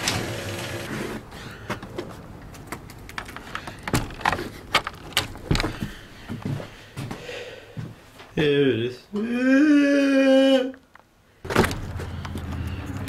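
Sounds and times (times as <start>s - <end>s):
footsteps: 5.4s - 8.4s.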